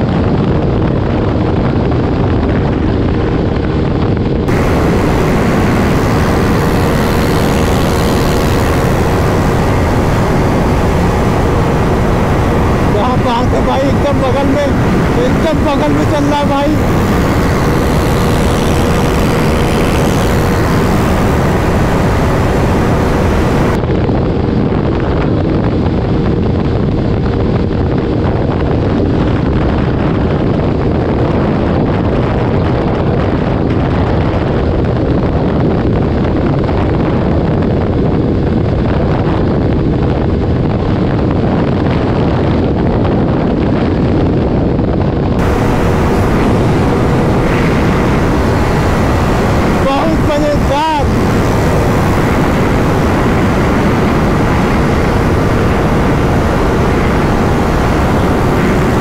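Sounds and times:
wind rush on microphone: 0:00.0 - 0:59.0
motorcycle engine: 0:04.4 - 0:23.8, 0:45.4 - 0:59.0.

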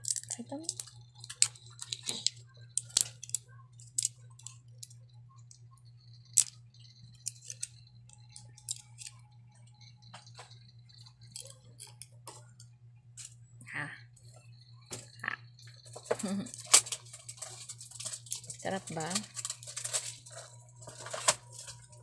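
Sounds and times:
plastic packaging clicking: 0:00.0 - 0:04.6, 0:15.9 - 0:22.0
steady low hum: 0:00.0 - 0:22.0.

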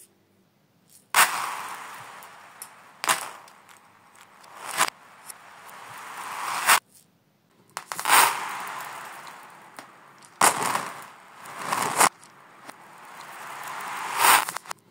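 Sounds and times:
reversed beads clattering on floor: 0:00.9 - 0:07.0, 0:07.8 - 0:14.8.

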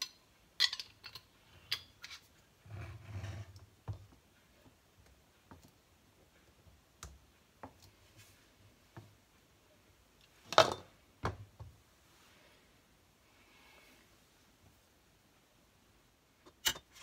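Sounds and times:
jar clattering: 0:00.0 - 0:02.0.

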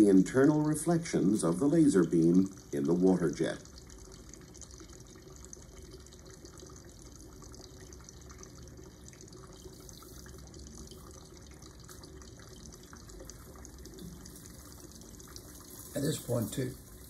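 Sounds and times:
water jet running into container: 0:09.3 - 0:17.0.

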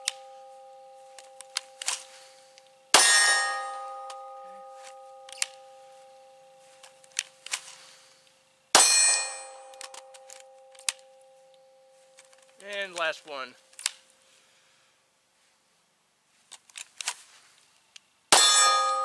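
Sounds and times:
steel target ringing: 0:00.0 - 0:01.8, 0:02.9 - 0:06.6, 0:08.7 - 0:12.0, 0:18.3 - 0:19.0.

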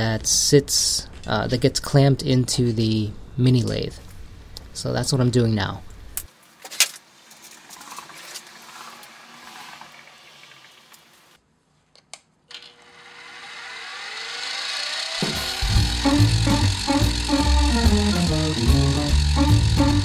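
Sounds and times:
milling machine cutting metal: 0:12.8 - 0:20.0.

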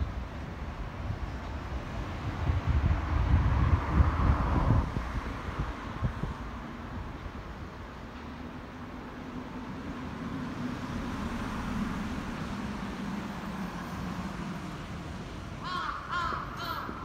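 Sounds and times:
bird calling: 0:15.6 - 0:17.0.

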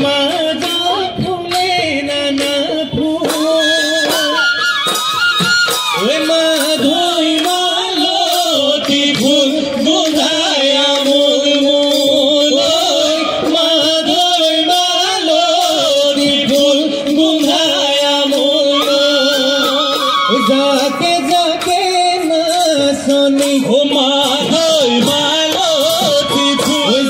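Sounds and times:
drums beating: 0:00.0 - 0:27.0
person singing: 0:05.9 - 0:27.0.

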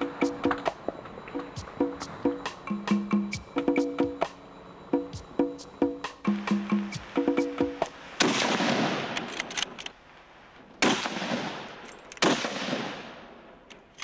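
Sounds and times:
gunshots with echo: 0:08.2 - 0:09.6, 0:10.8 - 0:13.4.

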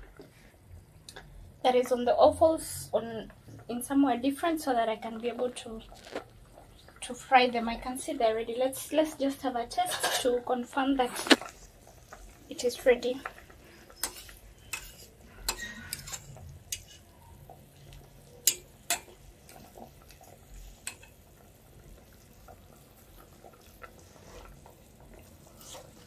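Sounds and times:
spoon stirring in metal pot: 0:11.0 - 0:26.0
spoon clinking against pot: 0:13.9 - 0:17.0, 0:18.3 - 0:19.2.

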